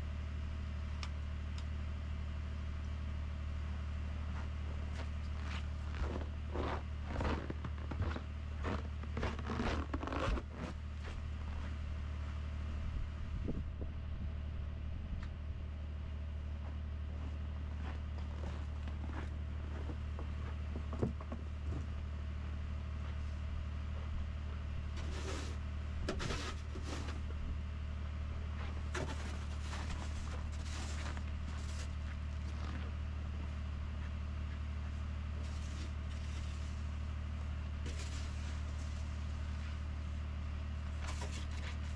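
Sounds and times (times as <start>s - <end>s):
footsteps crunching in snow: 4.3s - 12.3s, 16.6s - 20.9s, 28.5s - 33.0s, 35.4s - 36.9s, 37.8s - 39.9s
truck engine idling: 10.5s - 41.9s.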